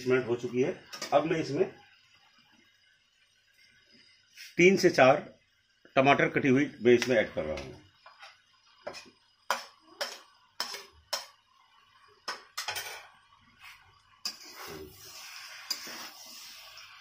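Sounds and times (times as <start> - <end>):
scraping in a pan: 12.6 - 17.0.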